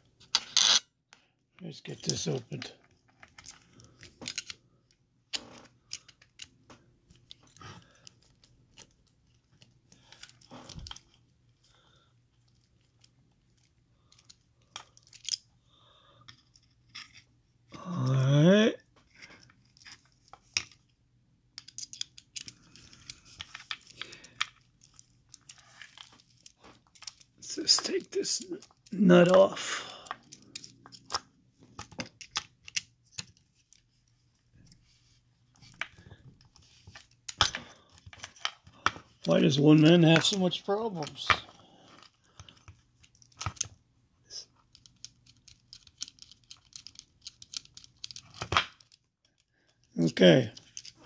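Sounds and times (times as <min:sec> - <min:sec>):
padlock metal clicks and scraping: 0:00.2 - 0:00.9, 0:02.0 - 0:11.2, 0:12.4 - 0:15.5, 0:16.2 - 0:17.3, 0:21.6 - 0:29.4, 0:30.0 - 0:34.8, 0:35.6 - 0:39.4, 0:41.0 - 0:43.8, 0:44.5 - 0:51.0
hand tools scraping padlock: 0:00.3 - 0:00.8, 0:44.7 - 0:48.4
small metal clicks: 0:12.5 - 0:15.5, 0:21.6 - 0:27.9, 0:30.0 - 0:33.8, 0:44.6 - 0:49.9.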